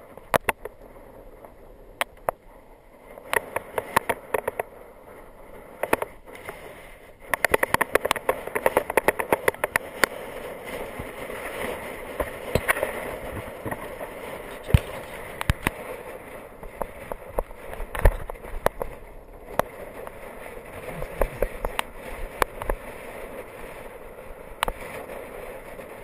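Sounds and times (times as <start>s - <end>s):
wind and road noise: 0.0s - 26.0s
sharp bicycle clicks: 3.2s - 4.7s, 5.8s - 10.2s, 24.6s - 25.1s.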